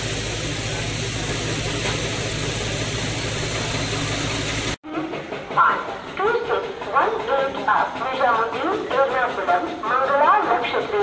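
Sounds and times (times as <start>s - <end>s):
engine drone with hiss: 0.0s - 4.8s.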